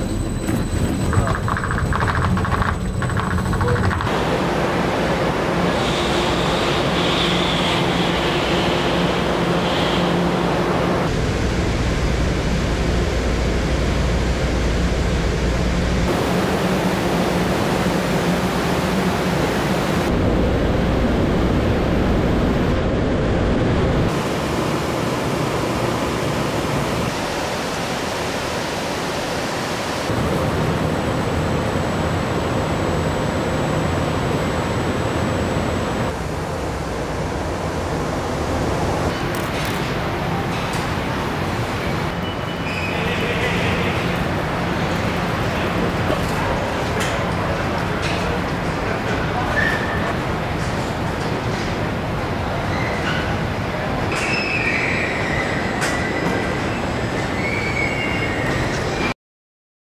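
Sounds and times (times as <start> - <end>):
wheels running on rollers: 0.4 - 4.1.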